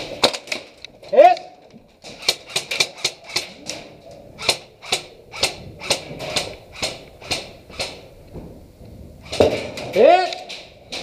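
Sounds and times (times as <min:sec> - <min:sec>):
airsoft gun shots: 0:04.4 - 0:08.0.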